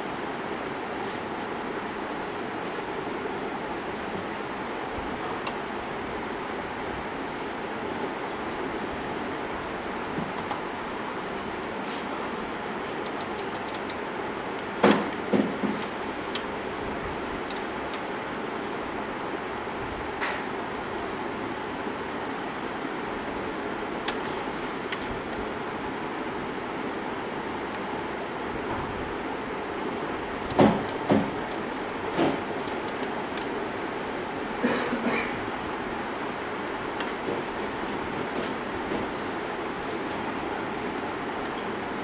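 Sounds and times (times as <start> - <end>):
steady hiss: 0.0 - 42.0
light clicks: 13.0 - 14.0.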